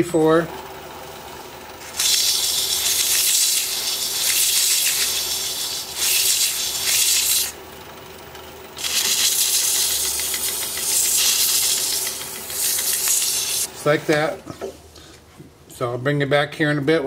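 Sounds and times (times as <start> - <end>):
sanding wood on a lathe: 1.8 - 7.6, 8.8 - 14.3
lathe motor humming: 6.7 - 14.1.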